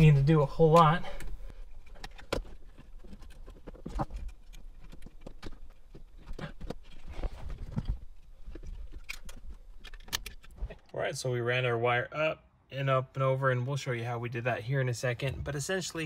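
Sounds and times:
hands handling wiring connectors: 0:00.0 - 0:11.0.

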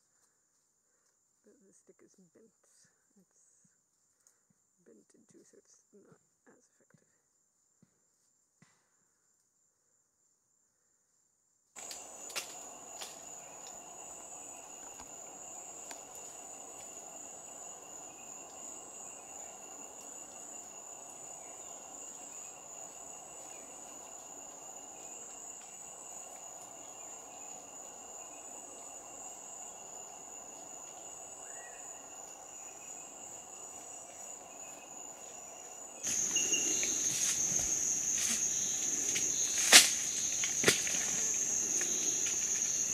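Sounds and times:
insects lower steady tone: 0:00.0 - 0:42.9
insects high whine: 0:11.8 - 0:42.9.

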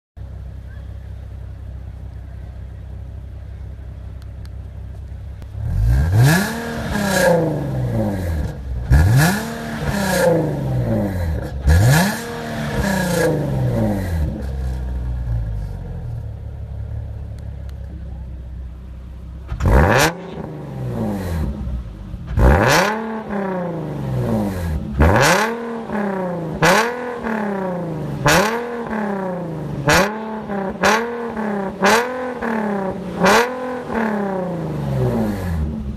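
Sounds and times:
car engine idling and revving: 0:00.2 - 0:35.9.

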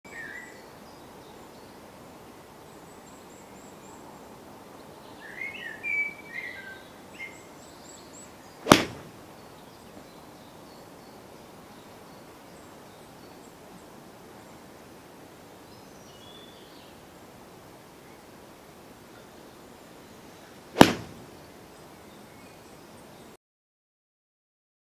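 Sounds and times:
background hiss: 0:00.1 - 0:23.4
birds chirping: 0:05.2 - 0:13.4, 0:20.0 - 0:23.0
golf club striking ball: 0:08.6 - 0:09.2, 0:20.8 - 0:21.4.

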